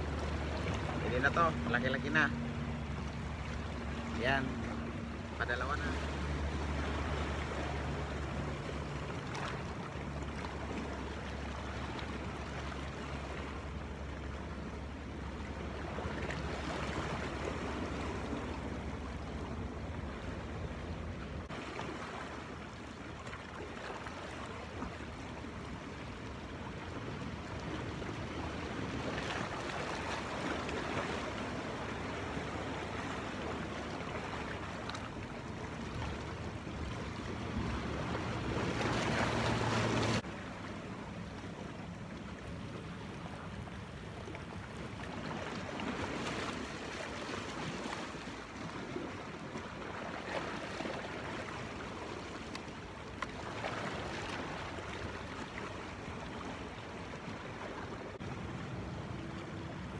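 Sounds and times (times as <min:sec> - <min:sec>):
waves splashing against rocks: 0:21.4 - 0:41.6.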